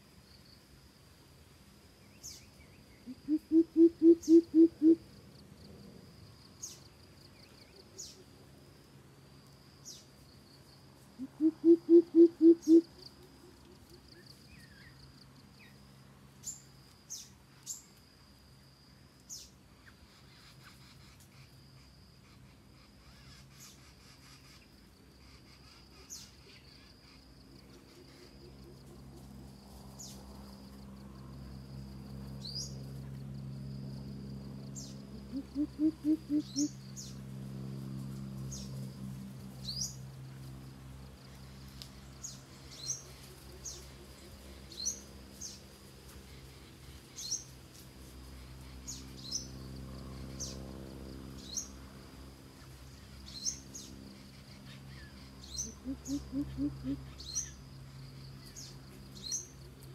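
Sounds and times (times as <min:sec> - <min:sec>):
high insect whine: 0:00.0 - 0:59.9
bird chirps: 0:02.0 - 0:05.0, 0:34.8 - 0:37.2, 0:53.0 - 0:57.6
coucal deep hooting call: 0:03.1 - 0:05.0, 0:11.2 - 0:12.9, 0:35.2 - 0:36.8, 0:55.7 - 0:57.1.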